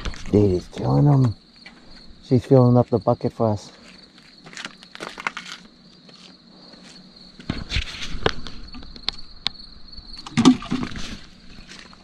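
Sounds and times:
night insects chirring: 0.0s - 12.0s.

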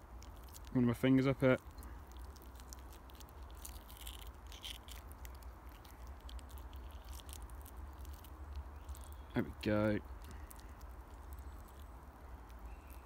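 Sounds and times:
wet tearing of raw meat: 1.8s - 9.3s.

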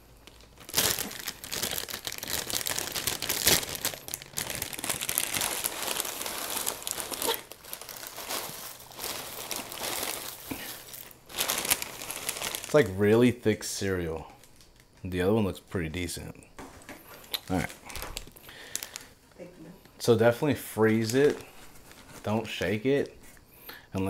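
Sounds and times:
plastic bag crinkling: 0.0s - 13.2s, 17.1s - 19.2s, 20.8s - 23.4s.

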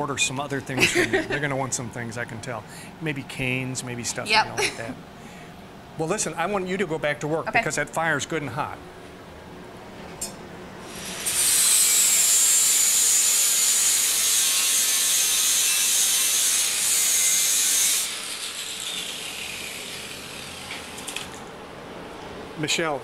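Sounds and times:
angle grinder grinding steel: 10.9s - 21.1s.

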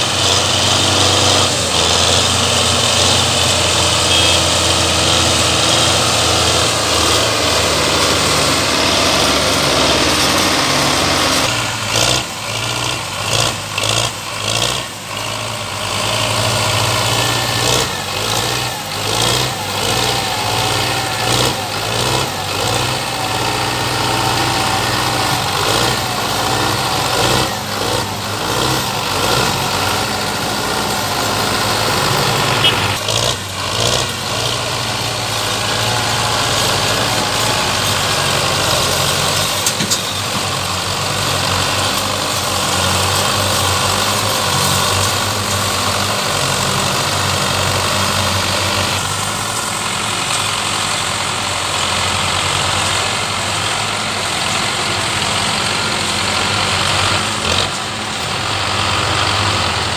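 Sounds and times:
tractor engines running under load: 0.0s - 59.9s.

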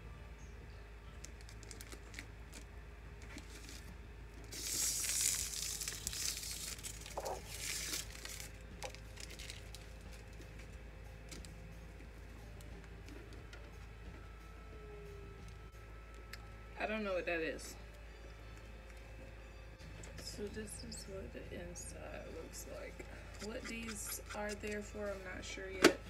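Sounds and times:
plastic bag crinkling: 1.2s - 10.4s.

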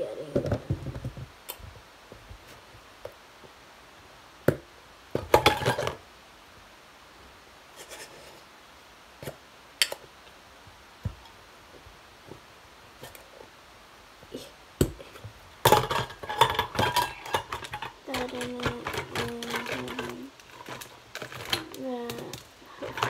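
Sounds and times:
plastic containers clicking and knocking: 14.8s - 23.0s.

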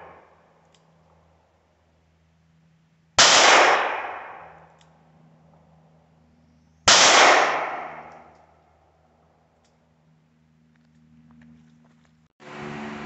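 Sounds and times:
revolver gunshots with echo: 3.2s - 4.6s, 6.9s - 8.3s.

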